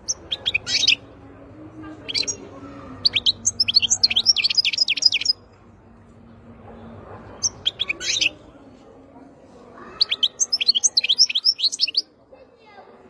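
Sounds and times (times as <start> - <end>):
goldfinch singing: 0.0 - 1.1, 3.0 - 5.4, 10.0 - 12.1.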